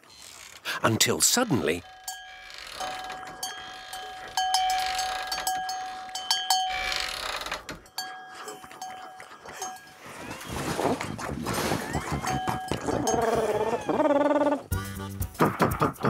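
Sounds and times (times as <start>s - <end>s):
small alarm bell ringing: 1.6s - 10.5s.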